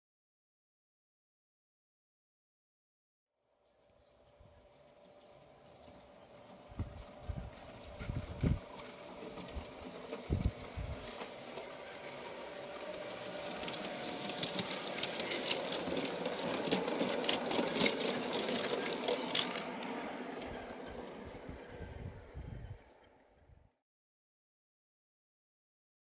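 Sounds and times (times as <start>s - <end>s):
wheels clicking over rail joints: 3.6s - 23.3s
model train motor whirr: 3.6s - 23.4s.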